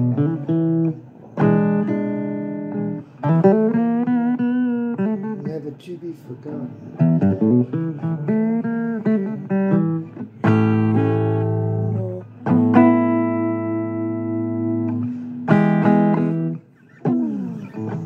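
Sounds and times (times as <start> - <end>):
slow blues guitar: 0.0 - 18.0.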